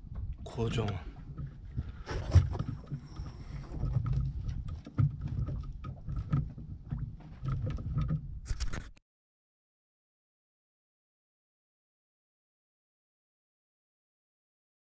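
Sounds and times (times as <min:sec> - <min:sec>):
wind and water rumble: 0:00.0 - 0:08.6
knocks and thumps on boat deck: 0:00.8 - 0:08.3
hand rubbing against camera: 0:08.5 - 0:09.0.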